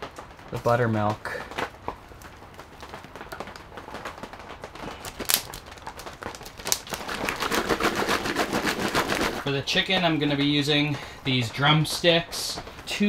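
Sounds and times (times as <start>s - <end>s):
plastic bag crinkling: 0.0s - 13.0s
liquid pouring into bag: 4.7s - 10.3s.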